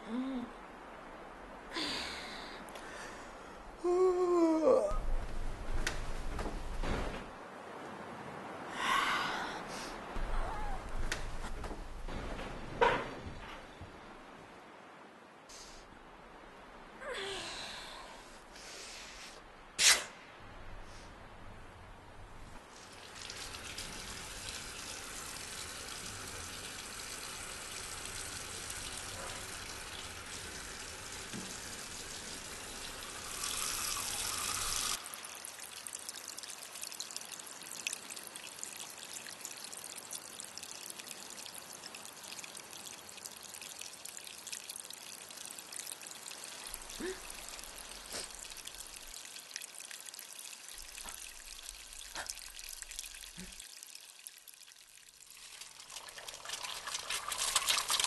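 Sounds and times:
water trickling and dripping: 9.9s - 14.4s, 22.0s - 58.0s
tap water splashing in washbasin: 22.8s - 35.0s, 46.6s - 54.6s, 55.2s - 58.0s.

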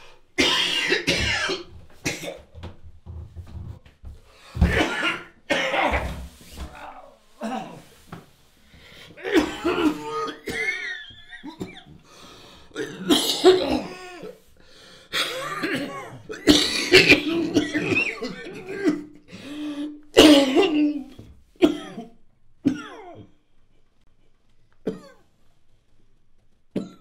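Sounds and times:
man coughing and gasping: 0.4s - 2.5s, 4.4s - 8.0s, 9.2s - 12.1s, 12.7s - 14.4s, 15.1s - 23.4s.

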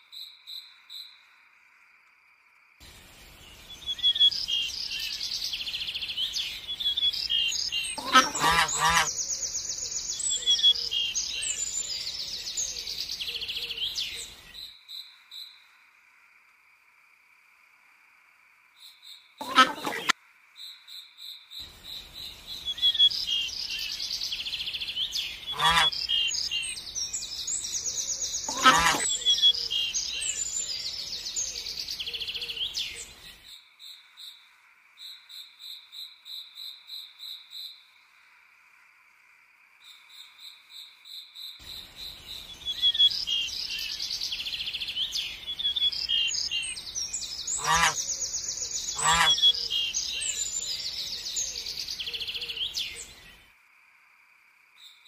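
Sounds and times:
small birds chirping and trilling: 3.2s - 15.6s, 19.2s - 33.6s, 40.2s - 53.5s
loud bird calls: 6.9s - 12.1s, 19.4s - 20.1s, 23.0s - 33.0s, 42.8s - 53.1s
pulsing insect-like call: 8.0s - 9.4s, 19.4s - 20.1s, 25.4s - 26.9s, 28.3s - 30.1s, 47.5s - 50.6s.

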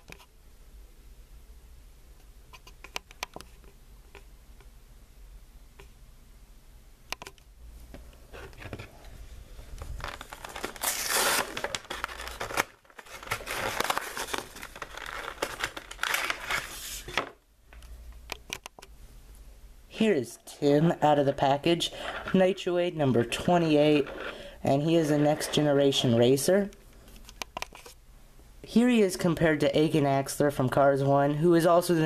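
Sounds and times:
plastic packaging crinkling: 9.7s - 17.4s.

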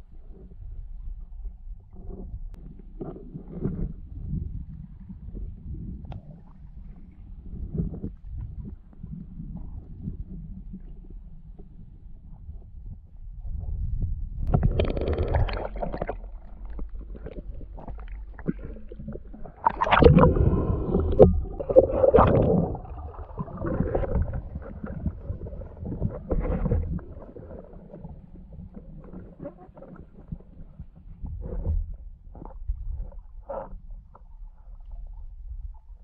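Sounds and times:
underwater water rushing and gurgling: 14.4s - 36.0s
sharp underwater knocks: 19.4s - 25.2s.

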